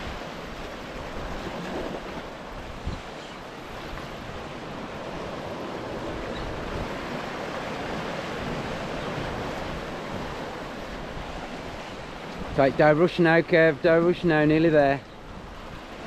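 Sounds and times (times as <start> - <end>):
wind buffeting microphone: 0.0 - 12.8
surf washing against rocks: 0.0 - 16.0.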